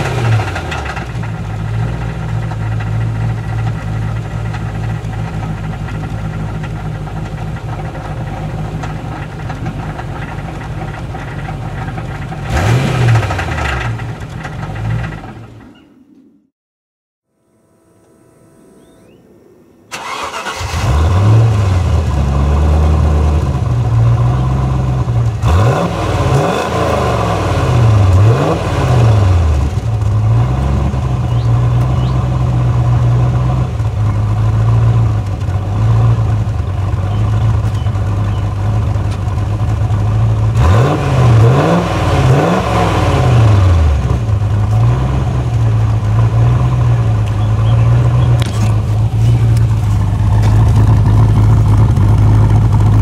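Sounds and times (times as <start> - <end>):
engine idling and revving: 0.0 - 15.8, 19.9 - 53.0.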